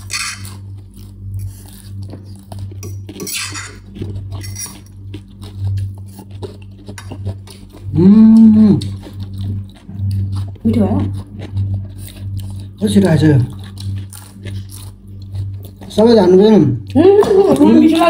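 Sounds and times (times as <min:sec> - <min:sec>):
forks clinking against bowls: 0:00.0 - 0:00.6, 0:02.8 - 0:04.9.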